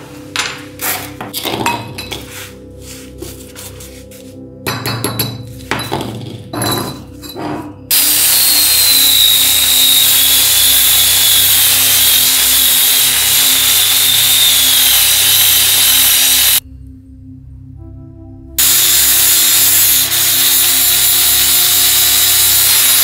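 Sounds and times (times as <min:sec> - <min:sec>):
metal clinks and knocks: 0:04.7 - 0:07.8
power tool whining: 0:07.9 - 0:16.6.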